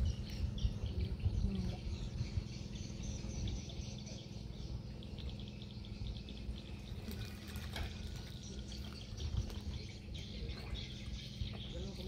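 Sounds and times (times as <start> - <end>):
bird chirps: 0.0 - 12.0
steady low hum: 0.0 - 12.0.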